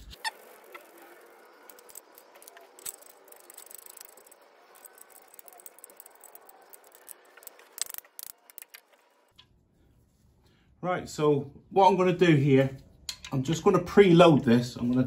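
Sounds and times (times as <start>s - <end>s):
metallic clicks and rattles of tools: 0.7s - 9.5s, 13.1s - 13.6s.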